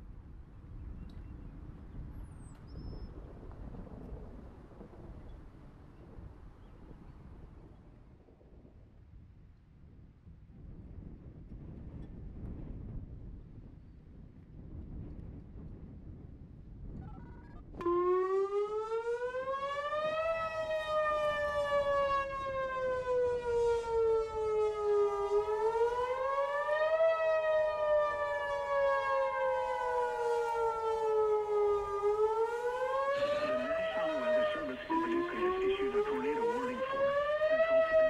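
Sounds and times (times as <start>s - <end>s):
warning siren wailing: 17.8s - 38.0s.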